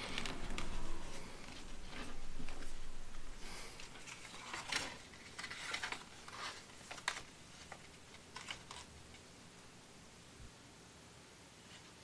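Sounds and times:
paper rustling and creasing: 0:00.0 - 0:09.3.

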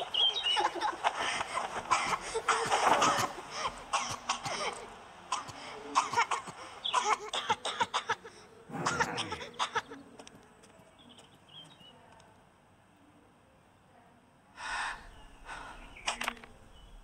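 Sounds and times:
girl coughing: 0:01.9 - 0:10.0
sharp breath: 0:14.6 - 0:16.1.

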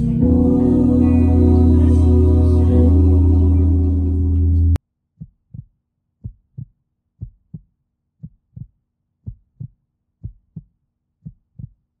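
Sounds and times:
heartbeat thumps: 0:05.2 - 0:11.8.

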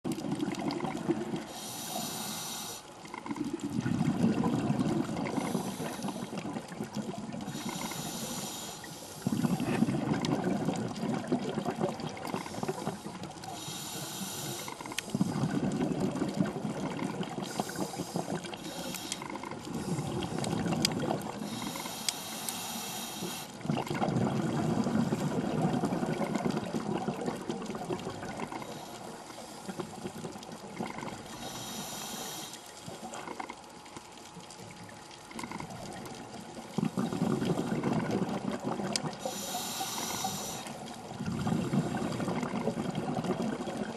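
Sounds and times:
bubbling exhaust underwater: 0:00.0 - 0:43.9
regulator hissing inhale: 0:01.4 - 0:02.9, 0:05.3 - 0:06.4, 0:07.4 - 0:09.8, 0:12.3 - 0:15.5, 0:17.4 - 0:20.5, 0:21.4 - 0:23.6, 0:28.5 - 0:29.9, 0:31.3 - 0:32.8, 0:39.2 - 0:41.0.

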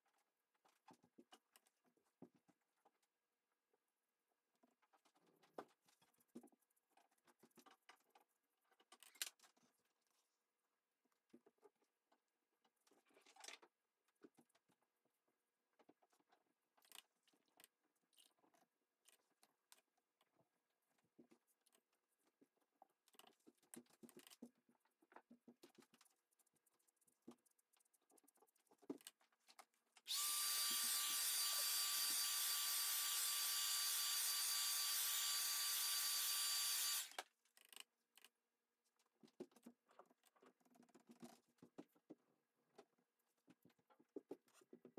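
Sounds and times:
hair dryer whining: 0:30.1 - 0:37.1.

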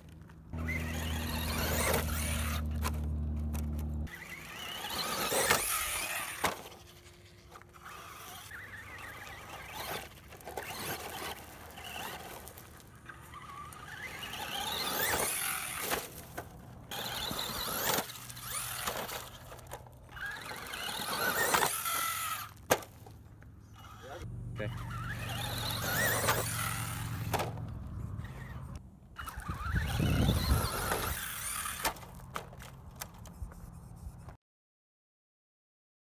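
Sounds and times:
rc truck motor whining: 0:00.0 - 0:33.6
toy truck hitting ground: 0:00.6 - 0:23.2, 0:24.8 - 0:28.5, 0:29.2 - 0:33.3
tyres scattering gravel: 0:08.7 - 0:23.2.

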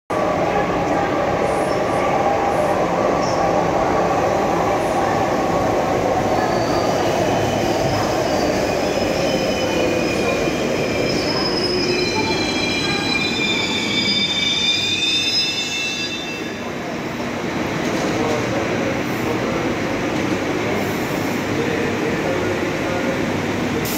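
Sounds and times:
high-pitched brake squeals: 0:06.4 - 0:16.7.

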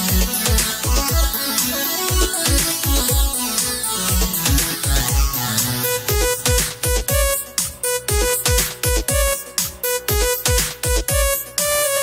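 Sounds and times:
deep kick drums: 0:00.0 - 0:01.4, 0:02.1 - 0:03.4, 0:04.1 - 0:07.4, 0:08.1 - 0:09.4, 0:10.1 - 0:11.4
held synth notes: 0:00.0 - 0:12.0.

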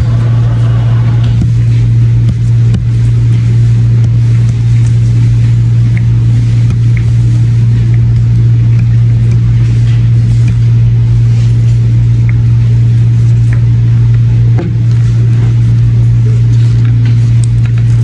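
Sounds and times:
loud steady low hum: 0:00.0 - 0:18.0
dauber tapping paper card: 0:00.4 - 0:12.6.

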